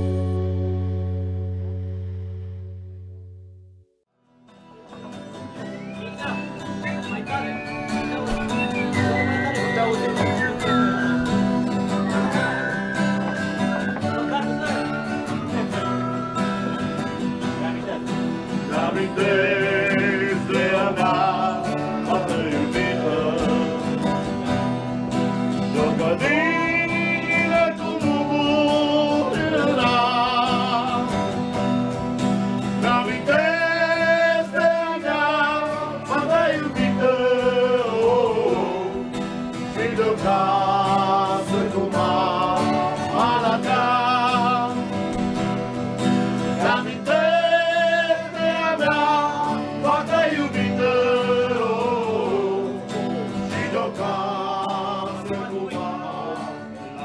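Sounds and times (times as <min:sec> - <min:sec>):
guitar accompaniment: 0:00.0 - 0:57.0
person singing with vibrato: 0:18.6 - 0:24.6, 0:25.5 - 0:31.6, 0:32.5 - 0:45.1, 0:46.4 - 0:57.0.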